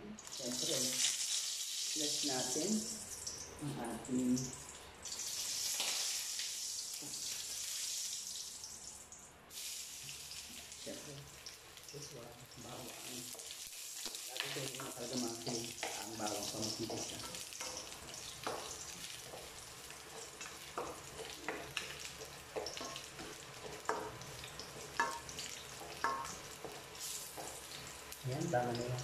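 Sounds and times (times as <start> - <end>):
garlic sizzling in oil: 0.2 - 29.0
spatula scraping a wok: 13.0 - 28.1.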